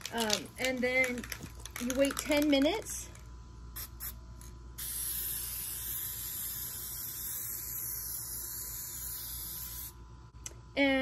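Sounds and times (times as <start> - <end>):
aerosol spray hissing: 4.8 - 10.0.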